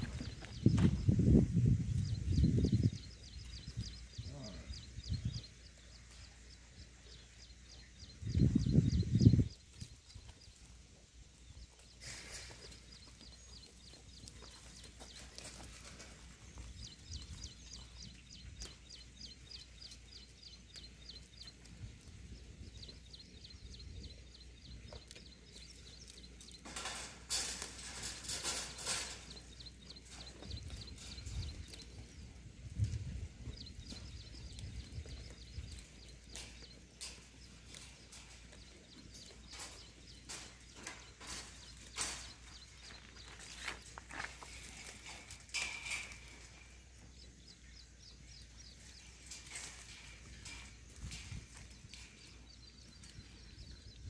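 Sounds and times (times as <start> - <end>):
rustling: 25.1 - 47.0.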